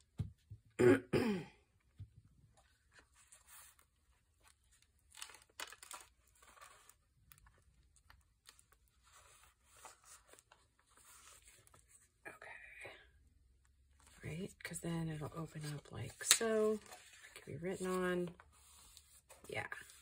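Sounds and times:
paper rustling and crinkling: 0:02.7 - 0:12.1, 0:15.2 - 0:20.0.

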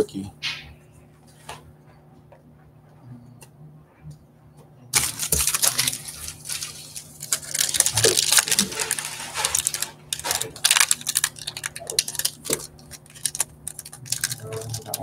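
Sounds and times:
foil wrapper crinkling and tearing: 0:05.0 - 0:15.0.

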